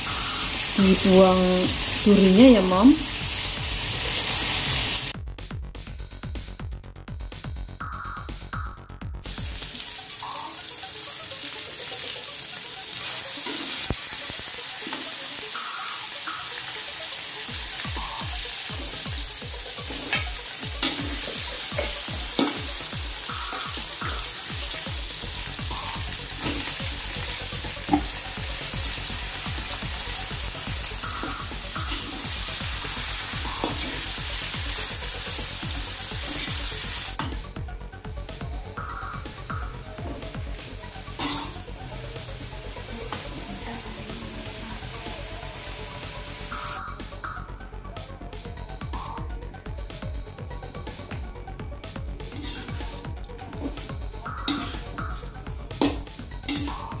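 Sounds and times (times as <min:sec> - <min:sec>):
food sizzling in hot oil: 0:00.0 - 0:05.2, 0:09.2 - 0:37.2, 0:38.7 - 0:46.8, 0:52.3 - 0:57.0
metal spatula scraping pan: 0:41.2 - 0:41.6, 0:52.3 - 0:53.0, 0:54.4 - 0:55.0.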